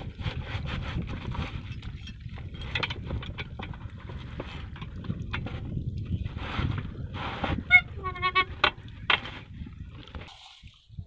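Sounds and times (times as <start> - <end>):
knocks and clatter: 0.0 - 5.8.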